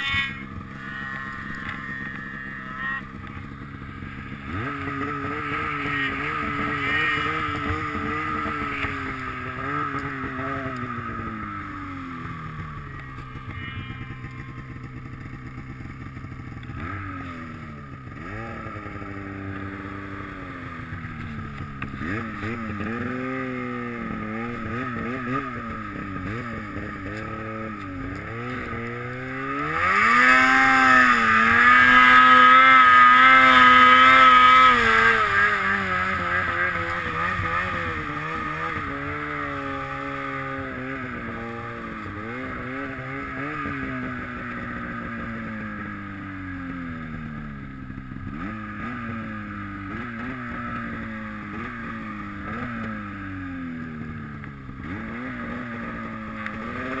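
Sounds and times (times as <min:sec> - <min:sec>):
snowmobile engine revving: 0:00.0 - 0:57.0.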